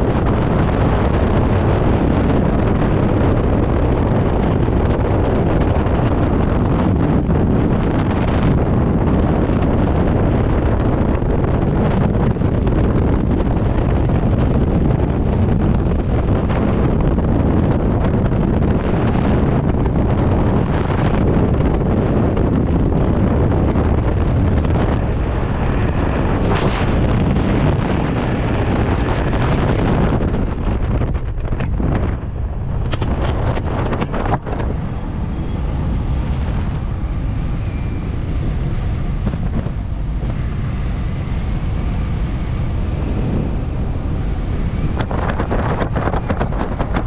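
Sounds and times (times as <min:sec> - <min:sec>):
wind buffeting microphone: 0:00.0 - 0:47.0.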